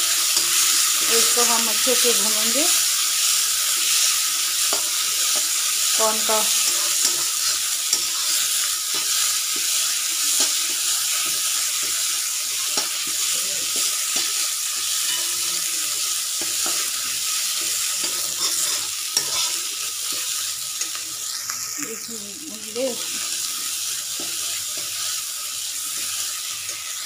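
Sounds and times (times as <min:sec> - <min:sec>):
paste sizzling in hot oil: 0:00.0 - 0:27.0
metal spatula scraping pan: 0:18.0 - 0:19.7.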